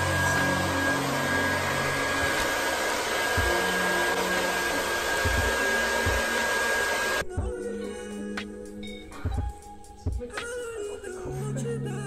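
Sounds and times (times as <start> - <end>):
hair dryer blowing: 0.0 - 7.3
music: 0.0 - 12.0.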